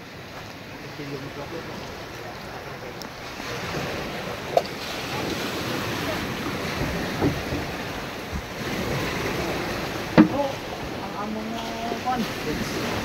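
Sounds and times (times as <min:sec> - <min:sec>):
small waves washing around boat: 0:00.0 - 0:13.0
wind buffeting microphone: 0:00.0 - 0:13.0
short knocks: 0:10.2 - 0:10.4.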